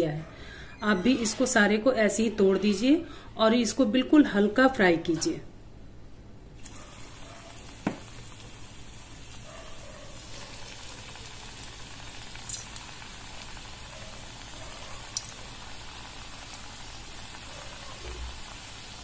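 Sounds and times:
dough sizzling in hot oil: 6.6s - 19.0s.

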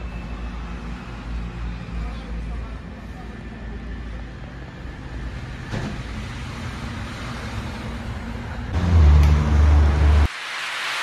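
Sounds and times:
heavy rain hissing: 8.8s - 11.0s.

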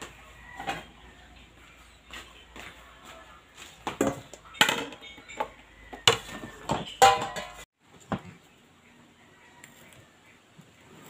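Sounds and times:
steel bowl knocking and clattering: 3.9s - 7.7s.

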